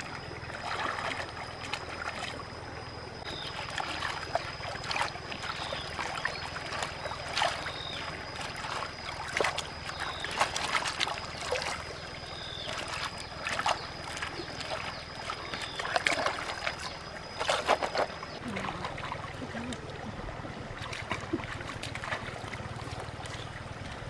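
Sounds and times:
stream trickling: 0.0 - 24.0
water splashing: 0.0 - 24.0.

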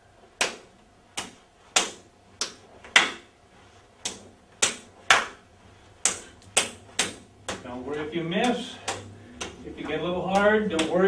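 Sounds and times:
hands slapping together: 0.4 - 3.3, 4.0 - 5.4, 6.0 - 7.7, 8.4 - 11.0.

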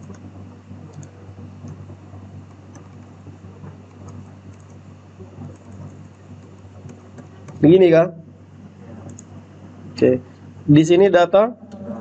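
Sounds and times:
steady low hum: 0.0 - 12.0
computer keyboard key presses: 4.0 - 4.8.

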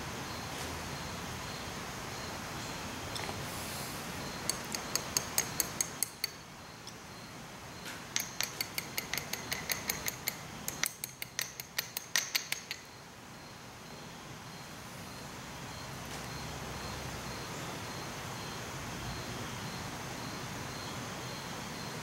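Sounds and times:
metal parts clicking: 4.5 - 7.0, 8.1 - 12.9.

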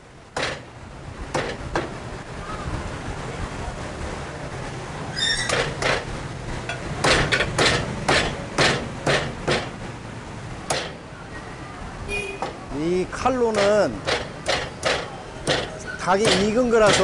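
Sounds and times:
cleaver chopping through bone: 13.5 - 17.0.

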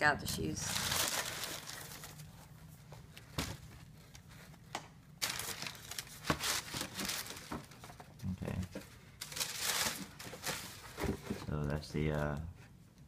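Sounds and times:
tissue paper crinkling: 0.6 - 4.6, 5.2 - 7.9, 9.2 - 12.3.

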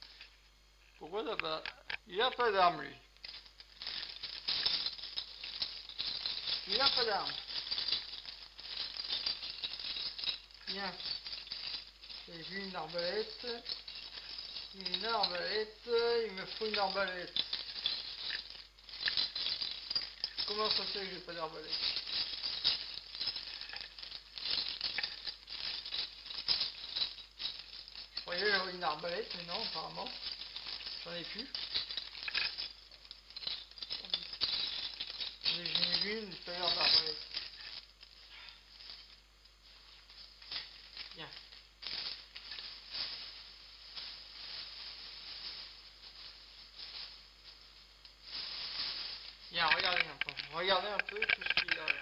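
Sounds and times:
plastic toy bricks clattering: 3.2 - 37.8, 49.5 - 52.0.

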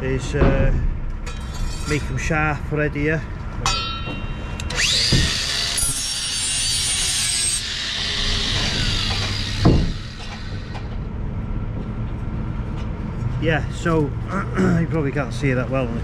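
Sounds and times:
angle grinder grinding steel: 4.6 - 11.0.

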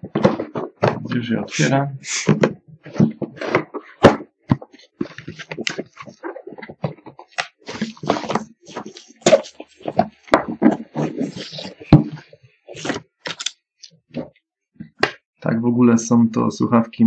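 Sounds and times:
plastic wrap and cardboard crinkling: 2.9 - 13.5.

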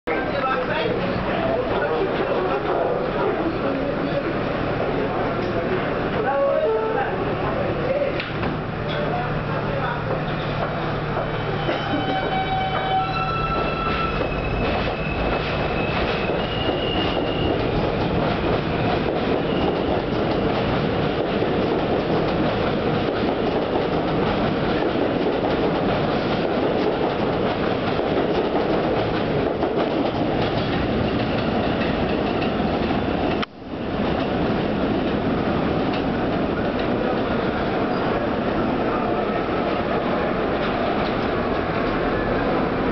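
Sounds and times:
train cars rumbling over rail joints: 0.1 - 42.9
train propulsion whine: 7.1 - 21.2
wheel squeal: 11.4 - 17.6.

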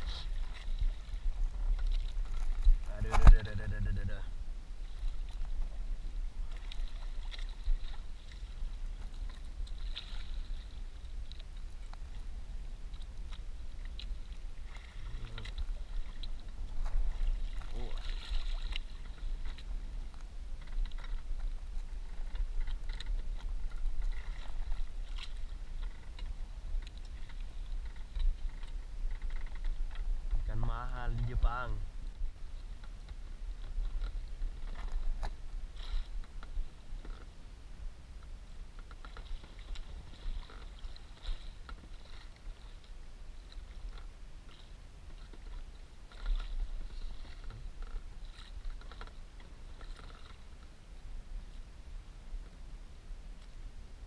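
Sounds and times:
water splashing against boat hull: 0.0 - 4.2, 4.8 - 37.4, 38.7 - 50.6
wind rumble on microphone: 0.0 - 54.0.

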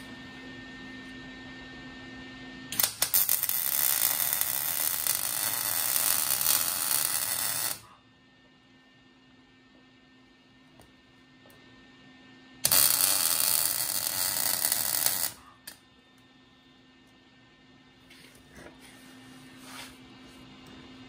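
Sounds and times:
steady low hum: 0.0 - 3.5, 7.1 - 21.0
arc welding hiss and crackle: 2.7 - 7.9, 12.6 - 15.8.

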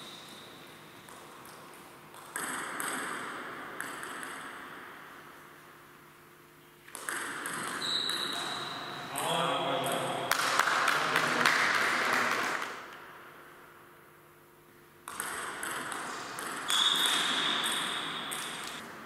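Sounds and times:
table tennis ball clicking: 6.9 - 8.2, 15.1 - 18.8.

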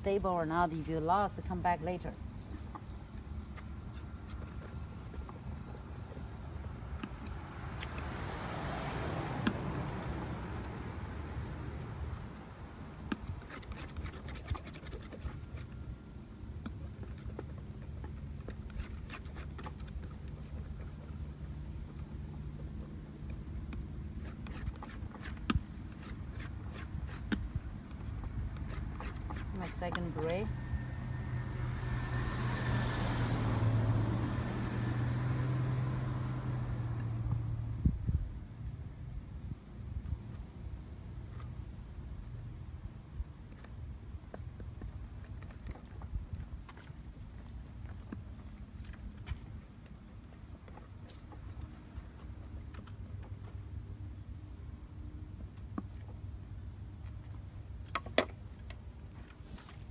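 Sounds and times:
painting tools scratching and tapping: 13.1 - 15.8
engine humming: 27.5 - 39.2.

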